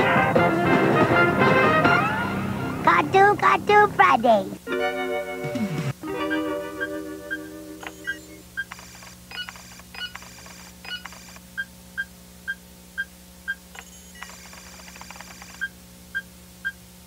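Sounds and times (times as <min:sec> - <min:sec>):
faint steady hum: 0:00.0 - 0:17.0
rapid electronic chirping and bleeping: 0:06.8 - 0:16.8.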